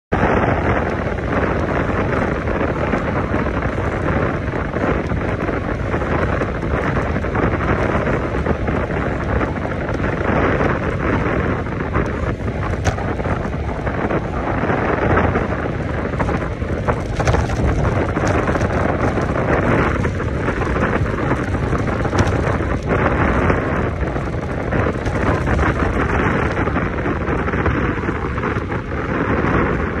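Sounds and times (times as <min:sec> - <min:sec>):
wind buffeting microphone: 0:00.1 - 0:30.0.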